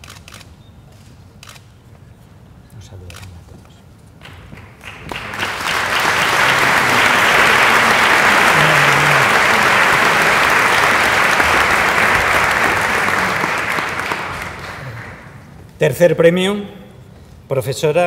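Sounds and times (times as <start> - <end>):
audience applause: 4.2 - 15.6.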